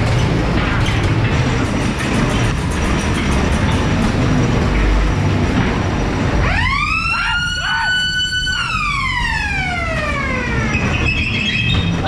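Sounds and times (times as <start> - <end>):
ride car rumbling on track: 0.0 - 12.0
siren winding up and down: 6.4 - 12.0.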